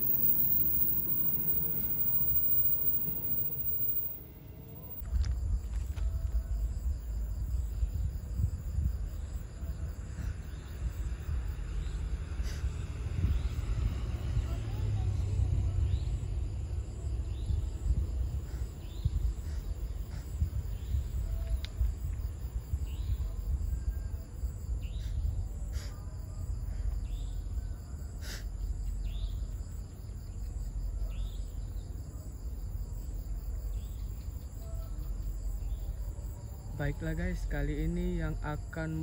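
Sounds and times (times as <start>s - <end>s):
fluctuating low rumble: 0.0s - 5.6s
insects chirping: 0.0s - 39.0s.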